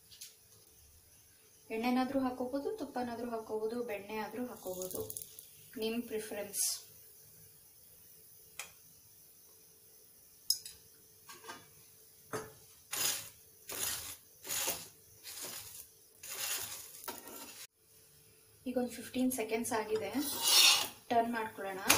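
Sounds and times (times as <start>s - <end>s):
metal spatula scraping griddle: 12.9s - 17.7s, 20.0s - 21.0s.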